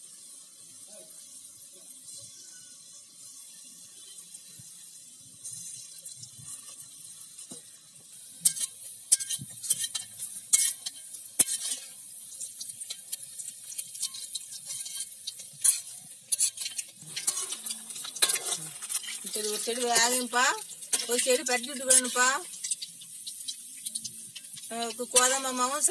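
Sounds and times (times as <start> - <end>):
batter sizzling in hot oil: 0.0 - 25.9
metal utensils scraping a pan: 5.4 - 7.6, 8.2 - 25.9.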